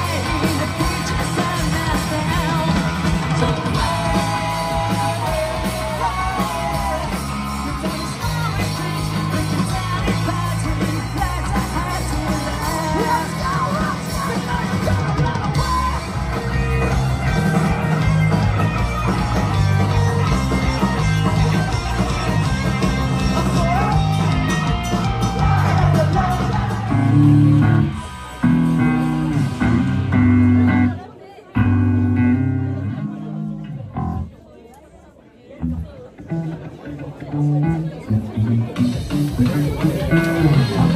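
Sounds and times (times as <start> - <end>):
person singing: 0.0 - 18.4, 20.7 - 28.0
punk rock band playing live: 0.0 - 34.4, 35.6 - 40.9.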